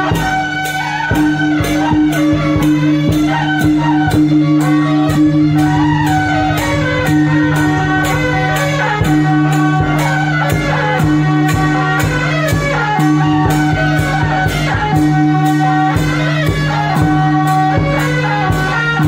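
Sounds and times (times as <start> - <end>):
cymbal or gong strokes: 0.0 - 18.8
drum beat: 1.8 - 17.2
melody line: 4.6 - 10.7
sustained low note: 4.9 - 10.4.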